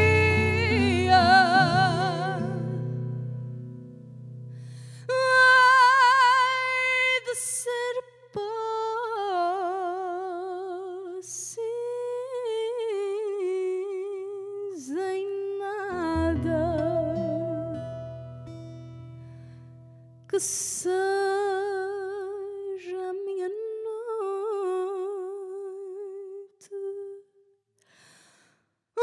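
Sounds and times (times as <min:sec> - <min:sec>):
woman singing with vibrato: 0:00.0 - 0:02.9, 0:05.1 - 0:17.9, 0:20.3 - 0:27.3
guitars and bass playing softly: 0:00.0 - 0:04.8, 0:15.9 - 0:20.2
woman breathing quickly: 0:27.8 - 0:28.7.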